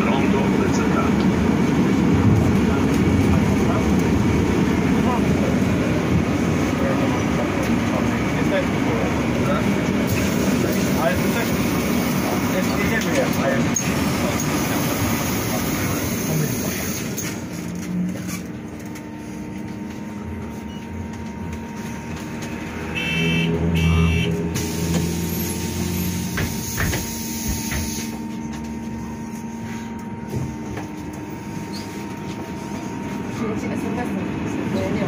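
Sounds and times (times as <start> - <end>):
short electronic beeps: 23.0 - 24.3.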